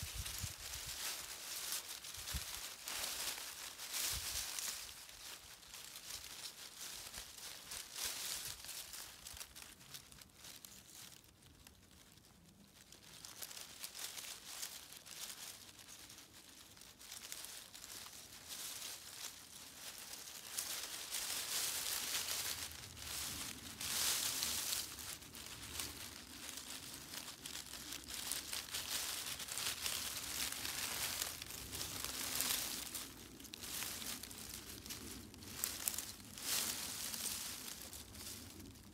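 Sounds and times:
dry leaves crinkling and rustling: 0:00.0 - 0:38.9.

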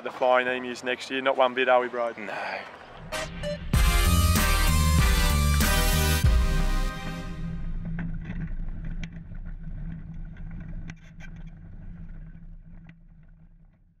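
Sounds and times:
engine humming: 0:02.6 - 0:13.7.

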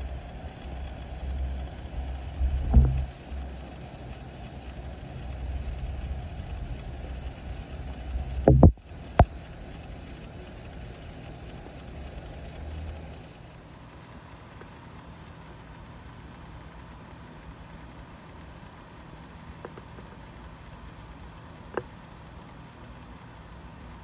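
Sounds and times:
sprinkler water spray hiss: 0:00.0 - 0:24.0
low rumble: 0:02.4 - 0:03.1.

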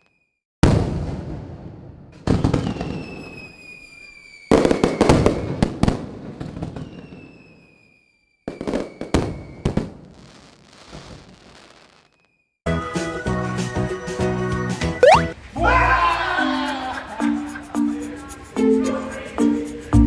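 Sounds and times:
whistle falling in pitch: 0:15.0 - 0:15.3.

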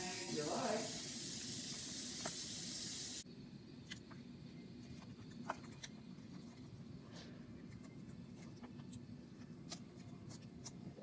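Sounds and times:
low steady hum: 0:03.2 - 0:11.0.

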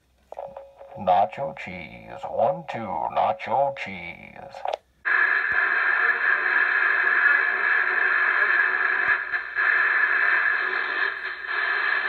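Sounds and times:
faint music from radio: 0:00.0 - 0:12.0
radio static rush: 0:05.1 - 0:12.0.

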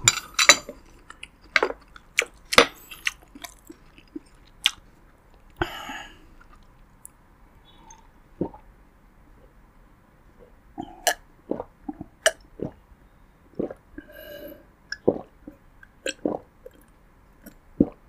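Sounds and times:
person gulping water: 0:07.9 - 0:08.6, 0:10.8 - 0:12.8, 0:13.6 - 0:18.0.

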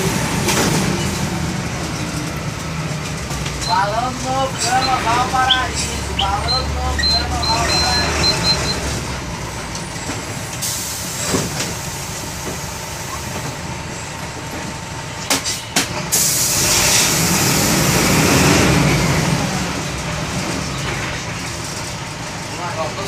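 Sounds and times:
diesel engine running: 0:00.0 - 0:23.0
hiss: 0:16.1 - 0:18.0.

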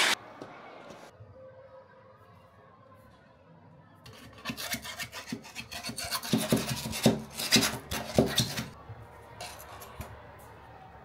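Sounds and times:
stick scraping sand in a cup: 0:04.1 - 0:08.8.

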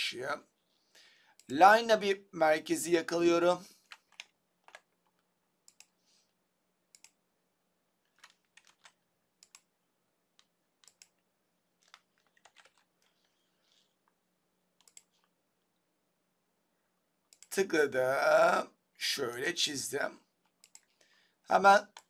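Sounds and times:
faint steady hum: 0:00.0 - 0:22.0
mouse and keyboard clicking: 0:03.9 - 0:06.0, 0:10.4 - 0:11.2, 0:14.8 - 0:15.3.

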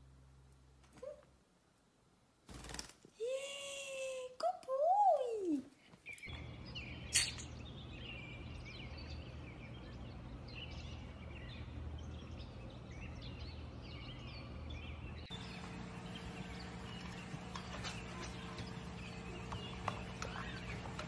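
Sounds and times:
steady low hum: 0:06.3 - 0:21.0
parrot chirping: 0:15.3 - 0:21.0.

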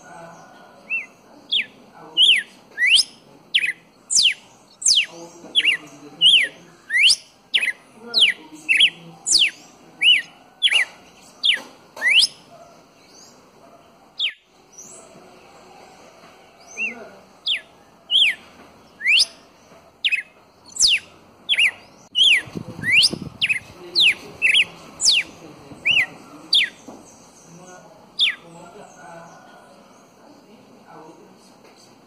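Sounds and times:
bird singing whistled notes: 0:00.9 - 0:12.5, 0:14.2 - 0:15.0, 0:16.6 - 0:18.4, 0:19.0 - 0:19.4, 0:20.0 - 0:26.8, 0:28.2 - 0:28.5.

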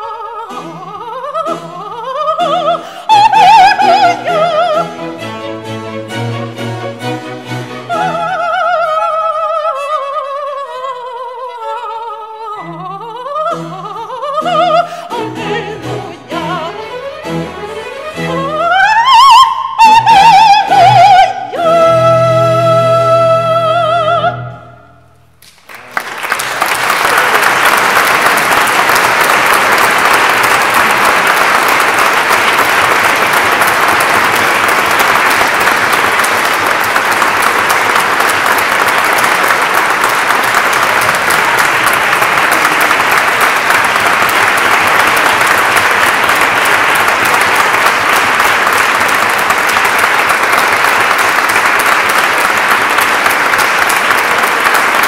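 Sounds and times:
audience applauding: 0:25.4 - 0:55.0.

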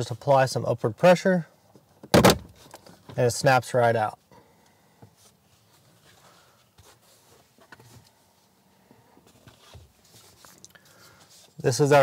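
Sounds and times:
soft clicks and rustles of plastic: 0:09.1 - 0:11.6.

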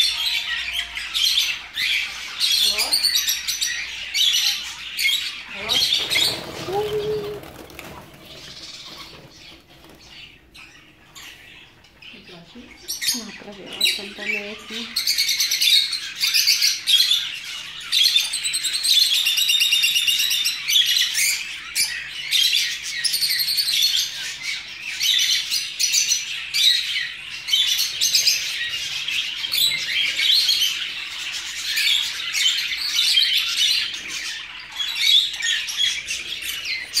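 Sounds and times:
budgerigars chattering and chirping: 0:00.0 - 0:37.0.

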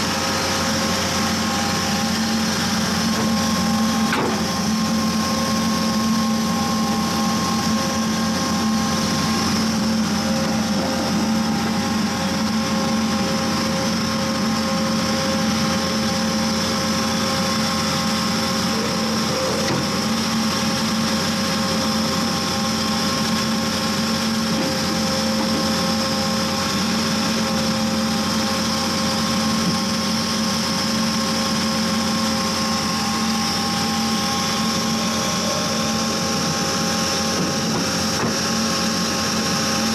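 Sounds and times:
constant whining tones: 0:00.0 - 0:23.8
drill rig engine drone: 0:00.0 - 0:39.9.

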